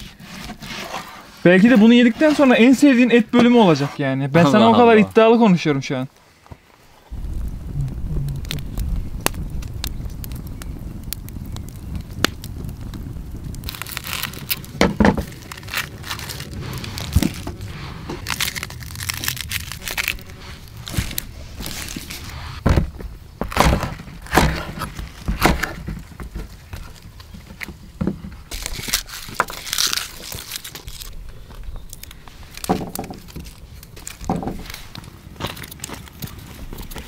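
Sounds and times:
garlic cloves cracking: 0:13.6 - 0:17.6, 0:18.2 - 0:22.1, 0:28.5 - 0:34.3.

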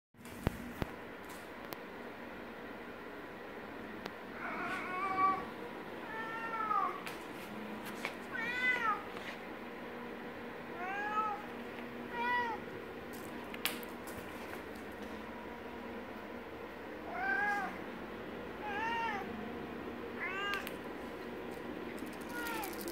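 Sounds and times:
cat meowing loudly: 0:08.3 - 0:09.0.

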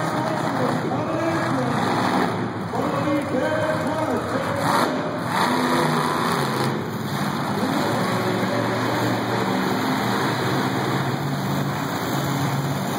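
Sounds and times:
monster truck engines running: 0:00.0 - 0:12.9.

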